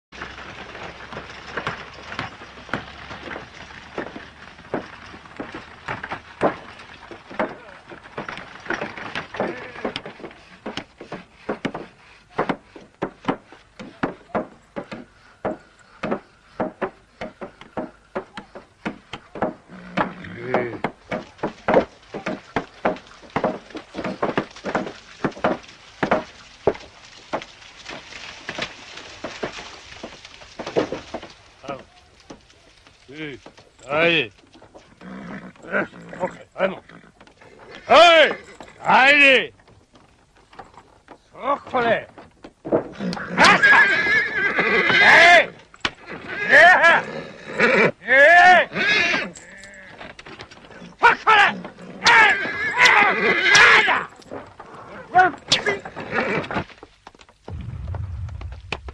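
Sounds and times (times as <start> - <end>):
cart wheels rumbling: 0.1 - 47.2, 49.2 - 58.9
wooden cart knocks: 0.2 - 10.8, 12.4 - 31.4
hooves and logs striking wooden boards: 0.2 - 35.0, 35.6 - 43.9, 44.8 - 46.9, 49.1 - 58.9
hoof clops: 0.2 - 58.9.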